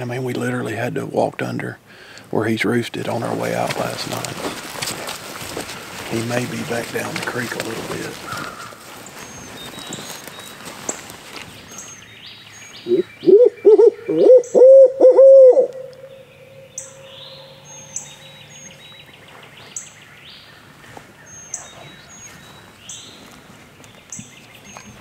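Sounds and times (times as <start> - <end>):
small birds chirping: 0.0 - 14.7, 15.7 - 25.0
owl hooting: 12.8 - 18.4.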